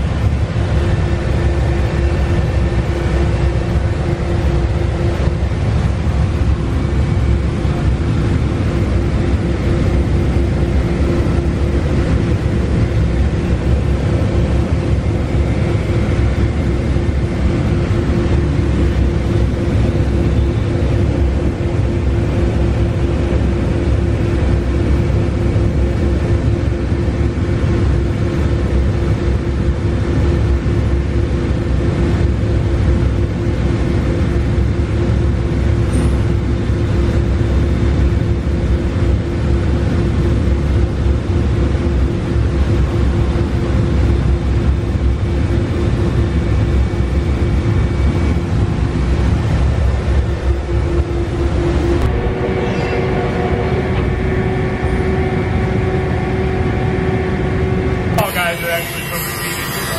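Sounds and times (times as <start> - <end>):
heavy machinery rumble: 0.0 - 59.9
router spindle tone: 51.4 - 59.9.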